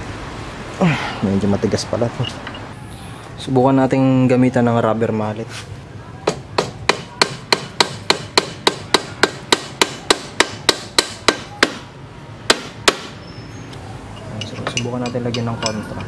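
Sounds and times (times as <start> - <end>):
rubber mallet tapping wrench: 14.4 - 16.0.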